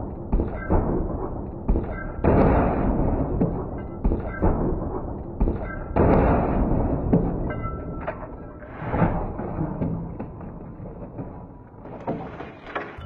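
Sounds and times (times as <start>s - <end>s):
scraping and rattling: 7.1s - 13.0s.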